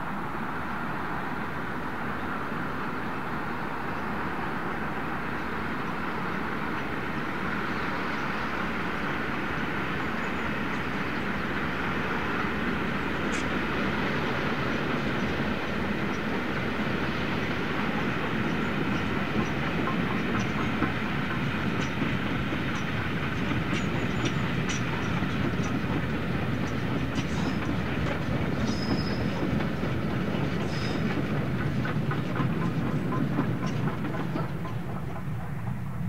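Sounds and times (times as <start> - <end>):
train wheels clicking over rail joints: 6.1 - 36.0
high wheel squeals: 28.6 - 29.4.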